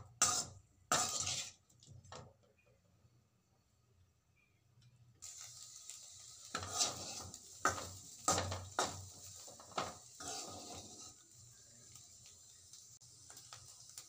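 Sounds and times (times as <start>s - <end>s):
frying hiss: 0.0s - 1.9s, 5.2s - 14.0s
metal spatula scraping a pan: 0.0s - 2.0s, 5.3s - 11.3s.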